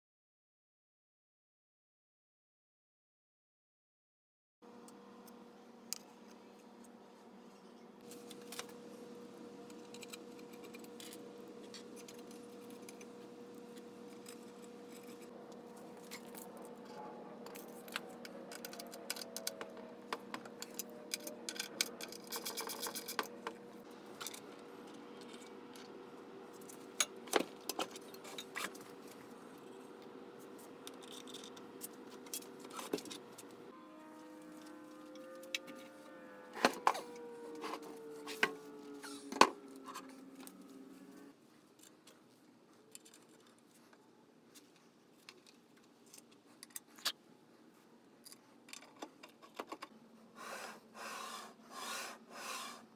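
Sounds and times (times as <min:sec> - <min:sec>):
steady low hum: 0:04.6 - 0:42.9.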